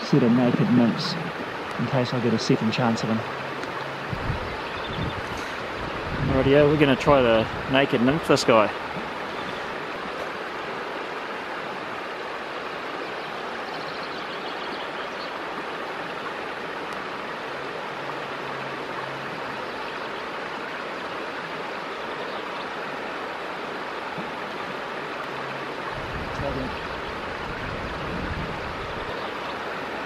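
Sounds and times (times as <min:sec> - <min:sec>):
stony river rushing: 0:00.0 - 0:30.0.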